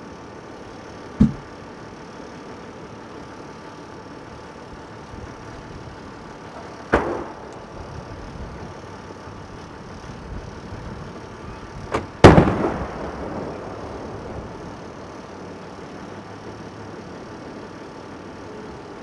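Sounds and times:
firework shell launch bang: 6.9 - 7.5, 11.9 - 13.2
firework shell bursting with rumbling echo: 6.9 - 8.0, 11.9 - 14.6.

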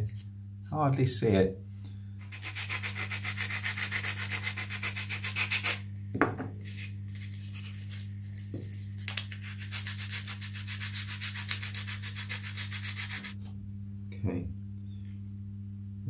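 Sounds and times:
steady low hum: 0.0 - 16.0
rapid rubbing strokes: 2.2 - 5.8, 9.3 - 13.4.

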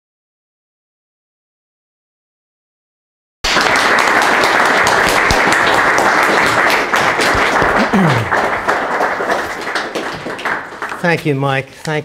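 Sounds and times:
audience applauding: 3.4 - 11.6.

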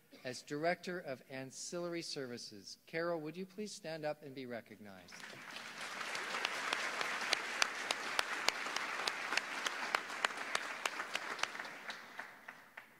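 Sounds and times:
audience applauding: 5.1 - 12.9
sharp loud claps: 5.1 - 12.9.

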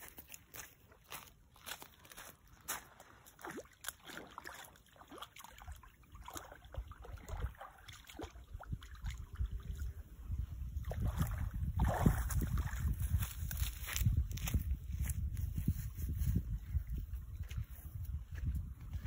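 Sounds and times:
water splashing and sloshing: 0.8 - 14.4
wind buffeting microphone: 8.2 - 19.0.

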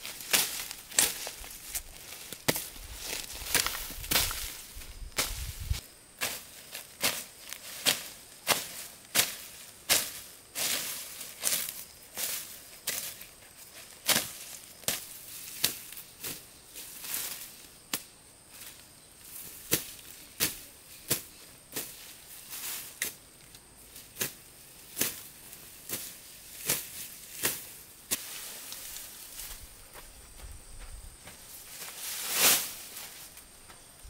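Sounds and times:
grass stems being cut: 0.0 - 13.1, 19.3 - 23.2, 24.0 - 29.6, 31.7 - 33.5.

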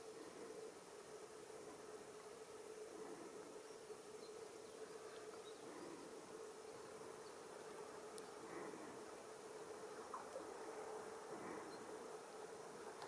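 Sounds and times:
faint hum under hiss: 0.0 - 13.0
faint ticks: 4.2 - 8.8, 9.4 - 10.6, 12.8 - 13.0.

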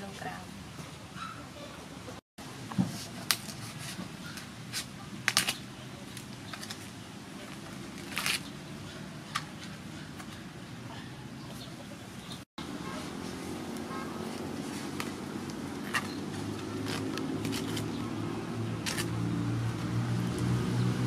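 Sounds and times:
knife cracking and scraping husk: 4.7 - 6.8, 16.8 - 18.0, 18.8 - 19.2.

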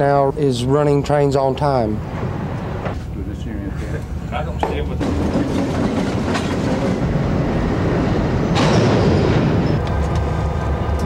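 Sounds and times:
freight cars clattering on rails: 4.4 - 11.0.

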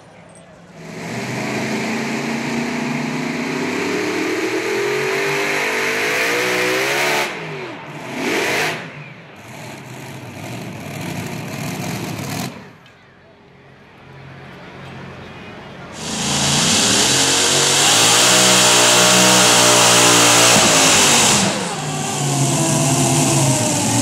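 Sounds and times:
pulling tractor engines at full load: 9.0 - 24.0.

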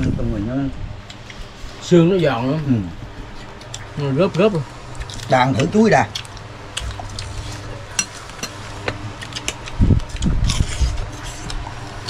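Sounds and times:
cucumber crunching: 5.0 - 7.9
low thumps: 6.8 - 8.0.

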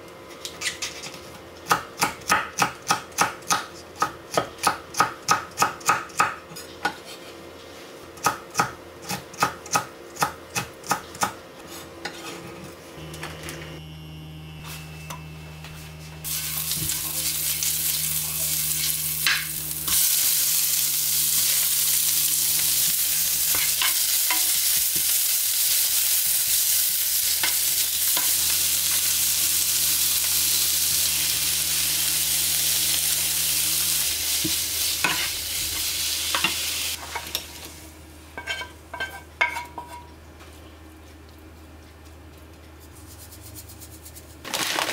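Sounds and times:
low steady hum: 12.1 - 24.7
food sizzling in frying pan: 16.2 - 37.8.

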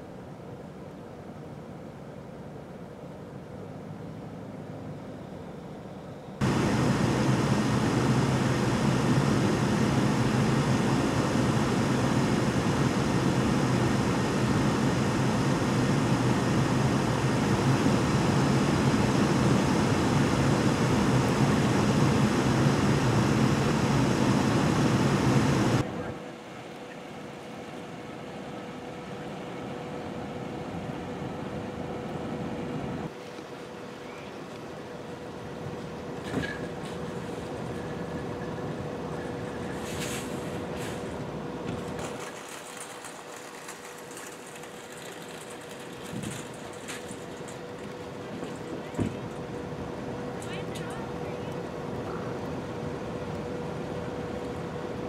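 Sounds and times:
traffic noise: 0.0 - 26.2
vehicle engine humming and hissing: 0.0 - 55.0.

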